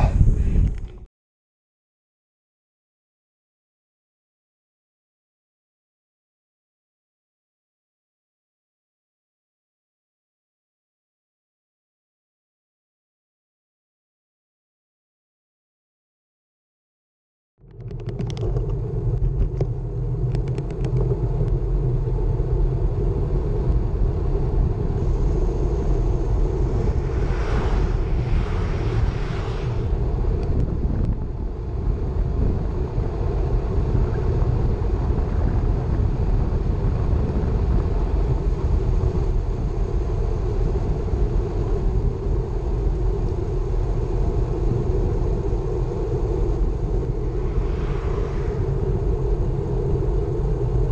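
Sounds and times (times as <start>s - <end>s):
wind buffeting microphone: 0.0s - 1.1s, 17.7s - 50.9s
road noise: 17.7s - 50.9s.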